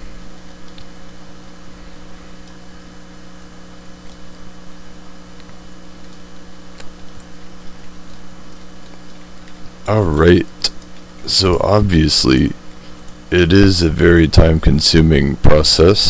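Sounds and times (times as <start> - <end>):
electrical mains hum and hiss: 0.0 - 16.0
faint mouse clicks: 0.6 - 0.9.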